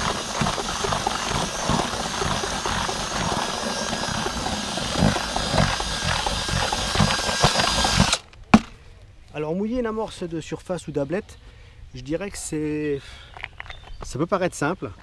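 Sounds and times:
drill paddle mixer running: 0.0 - 8.2.

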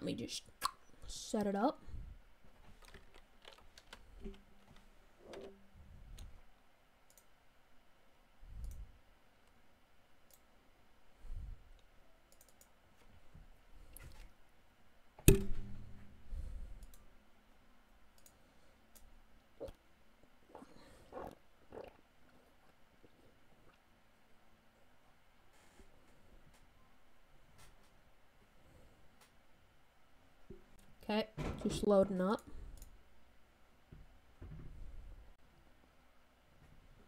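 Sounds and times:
computer mouse clicks: 7.0 - 7.3, 8.6 - 8.9, 12.3 - 12.8, 16.8 - 17.0, 18.2 - 19.1.

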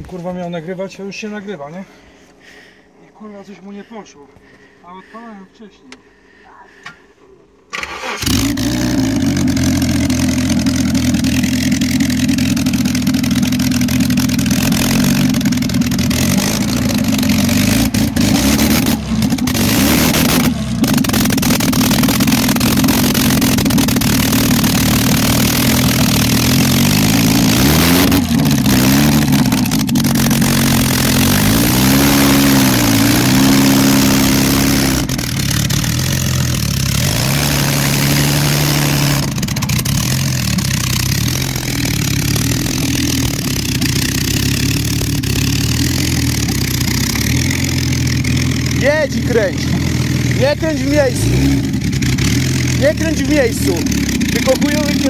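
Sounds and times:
car engine revving: 7.7 - 55.0.

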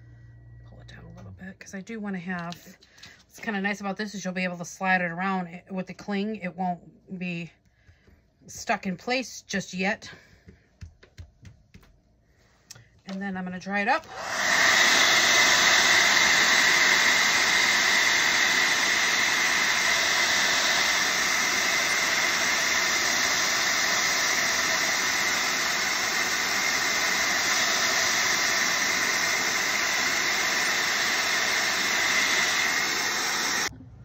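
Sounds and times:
hot-air dryer whining: 13.6 - 33.7.

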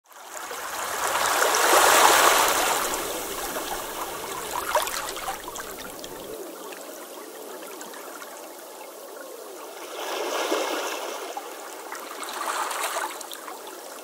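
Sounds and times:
wave washing over sand: 0.2 - 6.4.

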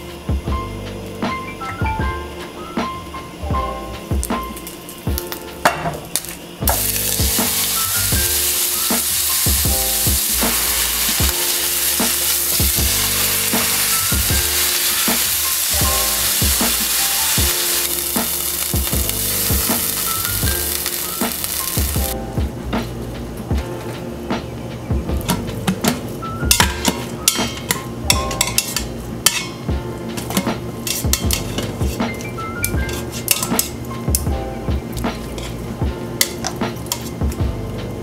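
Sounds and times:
meat sizzling in hot oil: 6.2 - 22.2.

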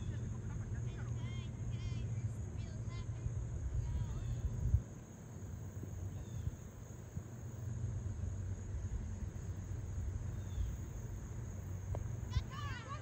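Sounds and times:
high insect hum: 0.0 - 13.0
wind on microphone: 3.6 - 5.0.

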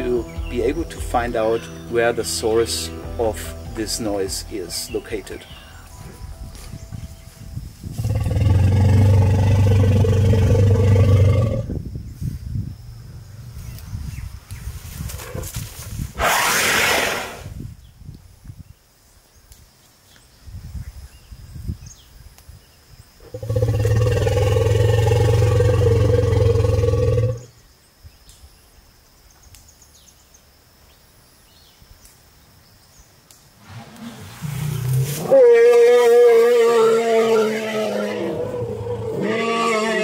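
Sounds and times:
elephant calling: 33.6 - 40.0.

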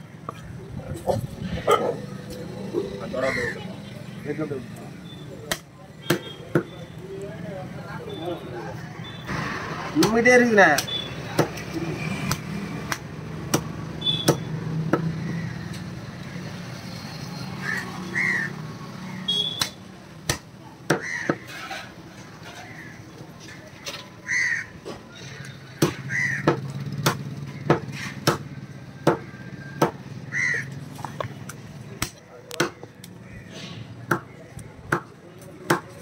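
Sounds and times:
cleaver chopping on wooden block: 19.6 - 21.4, 25.8 - 30.0, 32.0 - 32.9, 34.1 - 34.3, 34.9 - 36.0.

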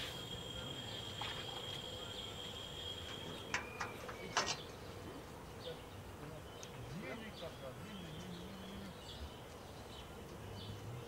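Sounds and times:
high-pitched insect drone: 0.0 - 4.2.

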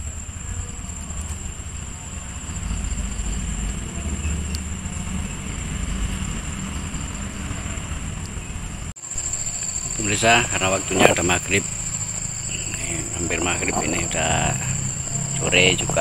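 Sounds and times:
insects trilling: 0.0 - 7.5, 9.0 - 16.0
low uneven rumble: 9.1 - 16.0.

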